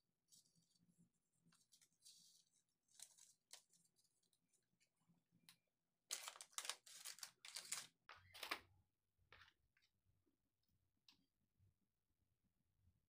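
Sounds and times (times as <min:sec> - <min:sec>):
packaging crinkling and rustling: 0:06.1 - 0:08.6.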